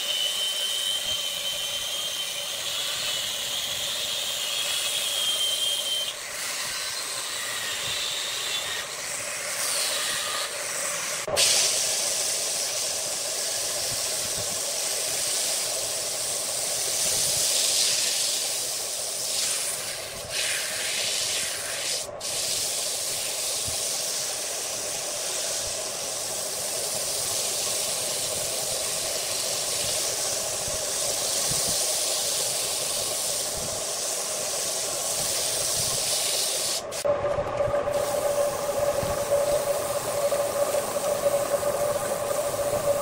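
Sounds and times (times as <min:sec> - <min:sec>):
sandpaper hissing on spinning wood: 0:00.0 - 0:37.1
lathe motor hum: 0:37.0 - 0:43.0.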